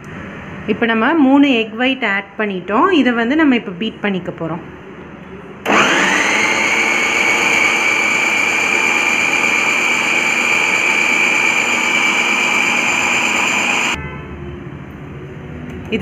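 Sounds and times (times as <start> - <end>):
food processor motor whining: 5.7 - 14.0.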